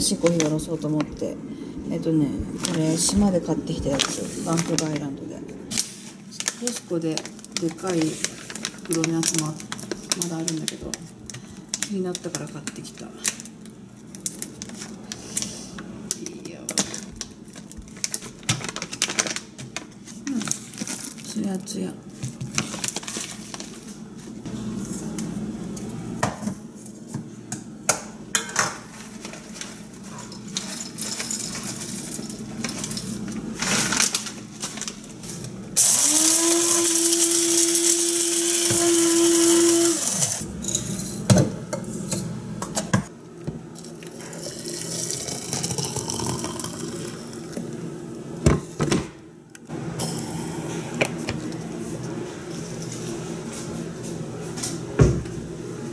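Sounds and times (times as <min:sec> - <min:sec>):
coffee grinder whining: 0:35.8 - 0:41.2, 0:44.0 - 0:47.6, 0:49.7 - 0:51.1.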